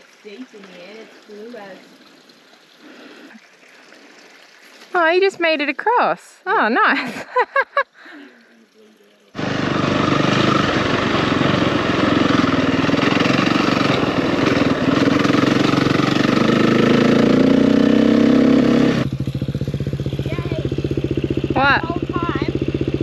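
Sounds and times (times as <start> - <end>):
dirt bike engine revving: 9.4 - 23.0.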